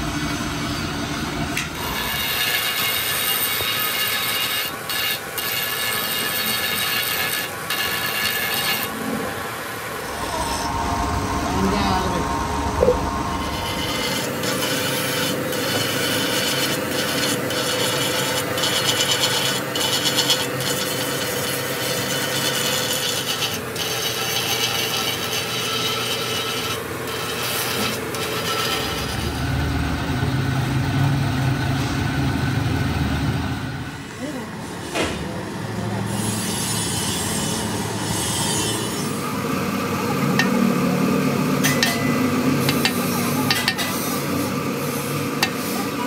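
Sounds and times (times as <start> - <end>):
hand file rasping on metal: 1.8 - 9.0, 13.5 - 29.3
low hum: 9.1 - 15.0.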